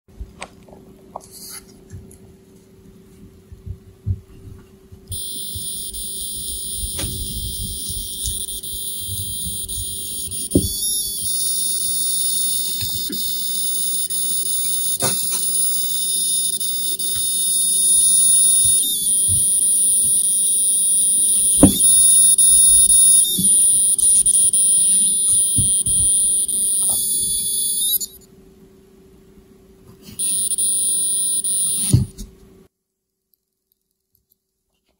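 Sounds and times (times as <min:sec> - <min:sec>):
robot buzzer electronic tone: 0:05.1 - 0:28.2, 0:30.2 - 0:32.2.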